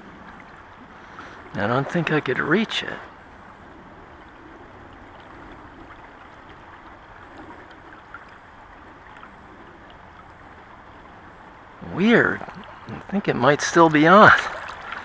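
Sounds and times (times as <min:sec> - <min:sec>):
river flowing over rocks: 0:13.6 - 0:15.0.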